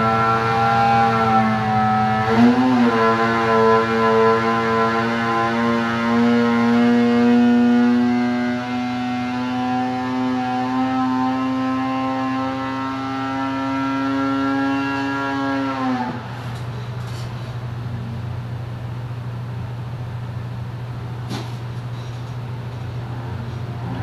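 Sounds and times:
snowmobile engine at full throttle: 0.0s - 16.5s.

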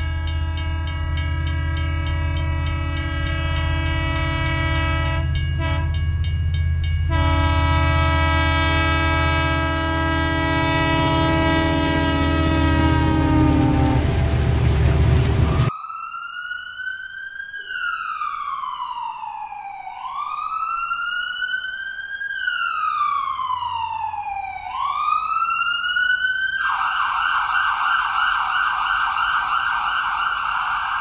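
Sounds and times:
train horn: 0.0s - 6.1s, 7.0s - 15.7s
ambulance siren wailing and yelping: 15.4s - 31.0s.

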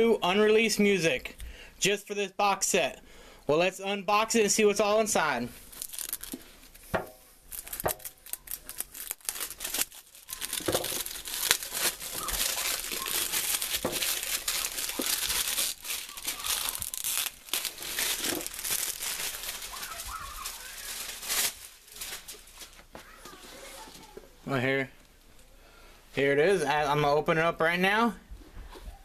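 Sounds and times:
plastic wrap crinkling and tearing: 5.6s - 24.2s.

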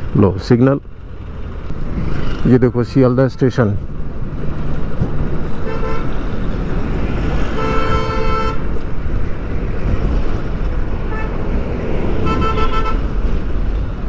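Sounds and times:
traffic engine noise: 0.0s - 14.0s
vehicle horns honking: 5.6s - 6.2s, 7.5s - 8.8s, 11.0s - 11.4s, 12.2s - 13.2s.

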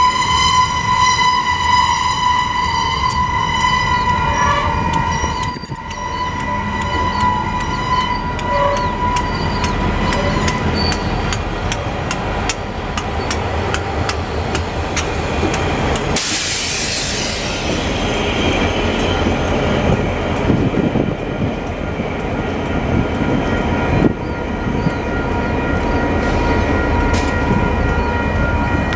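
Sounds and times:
diesel locomotive engines running: 0.0s - 28.9s
burst of hiss: 16.2s - 17.9s.

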